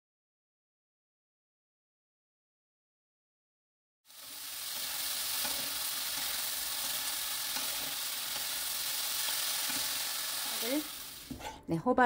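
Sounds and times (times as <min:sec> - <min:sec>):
vegetables sizzling in oil: 0:04.1 - 0:11.5.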